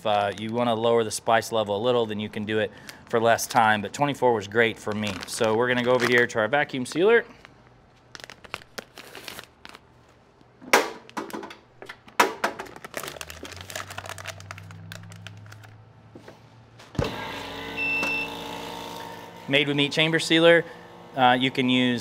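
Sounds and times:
plastic bag crinkling: 0.0 - 10.2, 12.0 - 15.8
vacuum sealer humming: 17.0 - 22.0.

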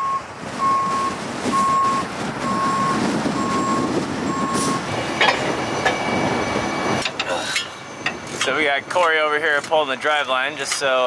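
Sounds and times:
truck backup alarm beeping: 0.0 - 10.7
diesel engine running: 0.0 - 11.0.

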